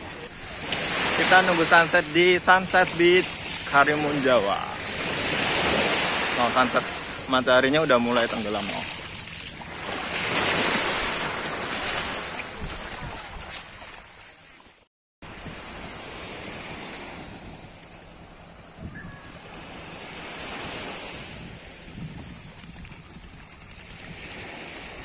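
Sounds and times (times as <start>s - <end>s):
small waves washing on shore: 0.0s - 25.0s
wind buffeting microphone: 21.3s - 24.5s.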